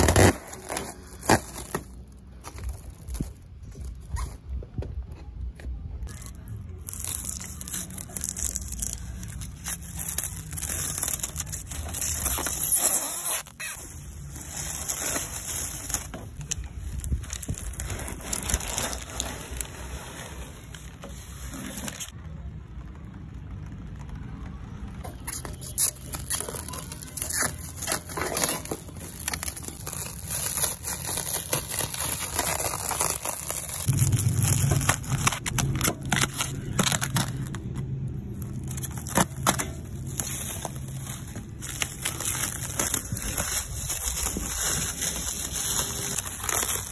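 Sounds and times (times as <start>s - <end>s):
plastic tearing and rustling: 0.0s - 4.4s, 6.0s - 22.2s, 25.0s - 46.9s
plastic wrap crackling: 0.0s - 4.4s, 6.0s - 46.9s.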